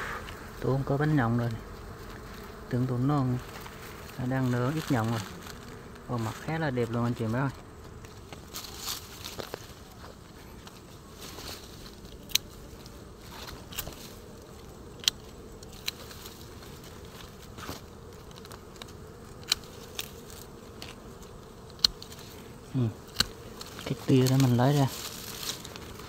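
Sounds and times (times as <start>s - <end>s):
honeybees buzzing: 0.0s - 26.0s
pruning shears snipping: 12.0s - 12.7s, 13.4s - 22.4s, 23.0s - 26.0s.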